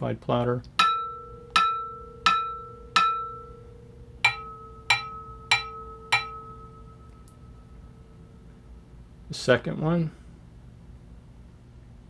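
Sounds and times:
wooden dowel tapping metal platter: 0.8 - 3.5, 4.2 - 6.7.

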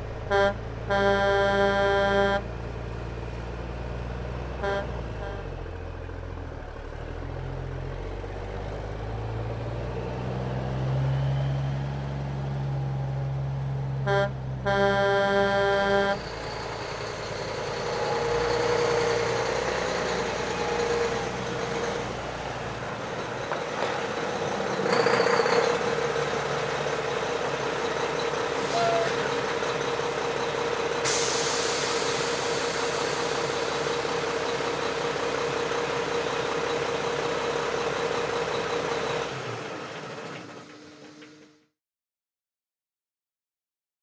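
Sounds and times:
engine running steadily: 0.0 - 41.6
loud hiss: 31.0 - 33.6.

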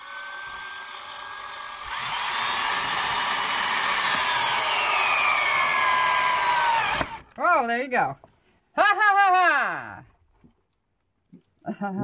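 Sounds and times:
power drill whining: 0.0 - 7.4.

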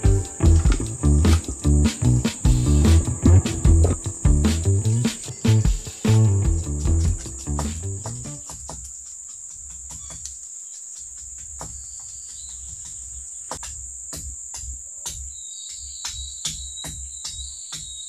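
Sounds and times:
low pulsing: 0.0 - 8.4
forest insects droning: 0.0 - 18.0.

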